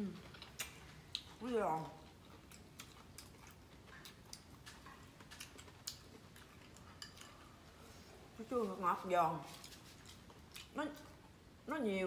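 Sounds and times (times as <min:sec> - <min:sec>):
person chewing crunchy food: 0:00.0 - 0:07.6, 0:09.5 - 0:10.8.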